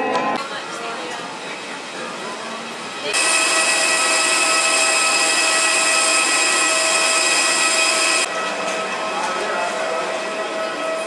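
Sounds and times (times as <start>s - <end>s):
jet turbine whine: 3.1s - 11.0s.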